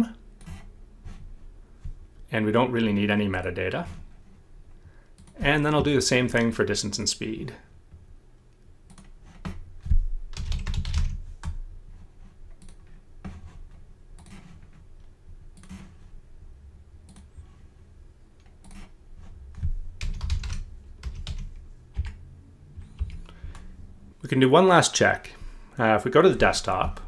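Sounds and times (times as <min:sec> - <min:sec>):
keyboard typing: 0:10.3 - 0:11.6, 0:12.6 - 0:12.9, 0:19.5 - 0:22.2, 0:22.8 - 0:23.7.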